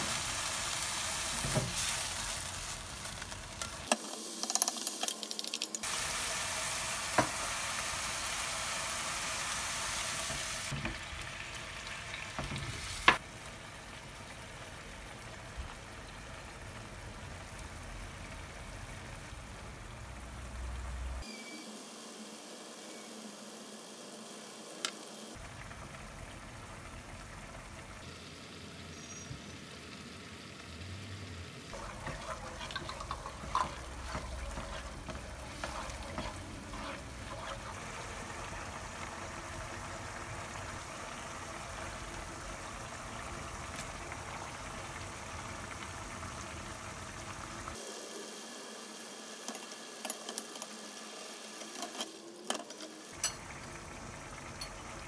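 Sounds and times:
sauce simmering and bubbling: 0:25.4 - 0:30.2, 0:31.7 - 0:48.0, 0:53.0 - 0:55.0
wooden spoon scraping a pan: 0:31.8 - 0:38.4.

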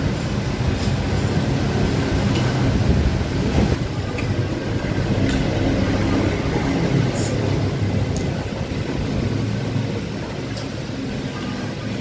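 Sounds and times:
steady low rumble: 0:00.0 - 0:11.2.

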